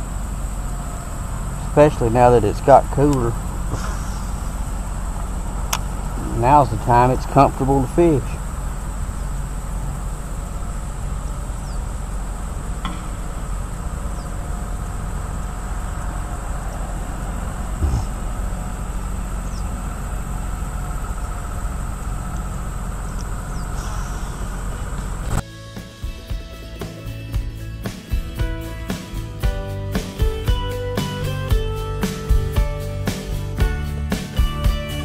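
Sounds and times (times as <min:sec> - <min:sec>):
crickets chirping: 0:00.0 - 0:34.4
low rumble: 0:08.3 - 0:25.4
dull thump: 0:12.8 - 0:13.5, 0:17.8 - 0:18.3
music: 0:25.4 - 0:35.0.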